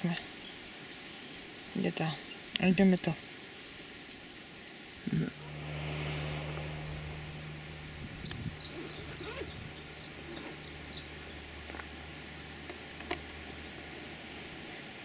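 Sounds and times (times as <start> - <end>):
steady low hum: 5.2 - 14.0.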